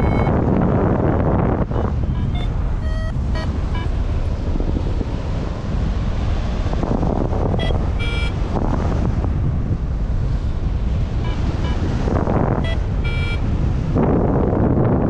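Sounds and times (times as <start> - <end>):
short high electronic beeps: 0.0 - 0.4, 1.7 - 3.9, 7.6 - 8.4, 11.2 - 11.8, 12.6 - 13.4
wind buffeting microphone: 0.0 - 15.0.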